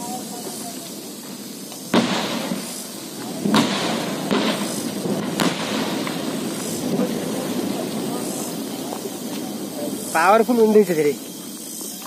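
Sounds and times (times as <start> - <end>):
rock-blasting explosions: 0.2 - 11.4.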